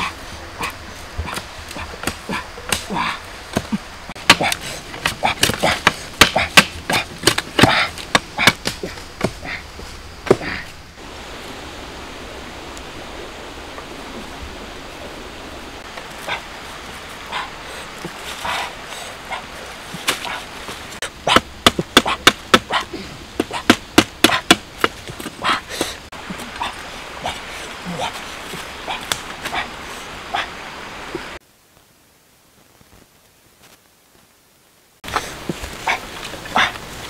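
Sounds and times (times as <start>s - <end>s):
steady background hiss: 0.0s - 37.0s
machete chopping bamboo: 1.2s - 9.4s, 21.2s - 25.4s.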